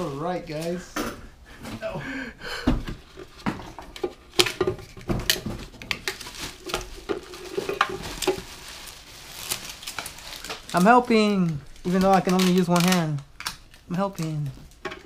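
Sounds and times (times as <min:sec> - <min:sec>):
plastic bags crinkling: 0:04.0 - 0:15.0.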